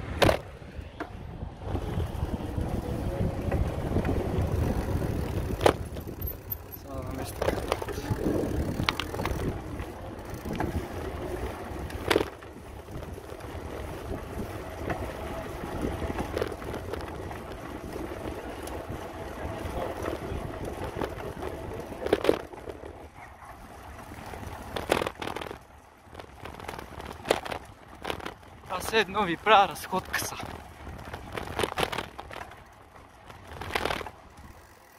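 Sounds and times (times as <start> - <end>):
wind on microphone: 0.0 - 6.5, 7.3 - 22.9
bicycle rolling on rough asphalt: 0.0 - 34.9.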